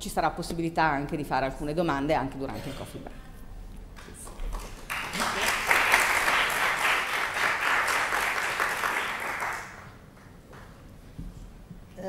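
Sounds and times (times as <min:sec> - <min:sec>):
audience applauding: 0:04.0 - 0:10.7.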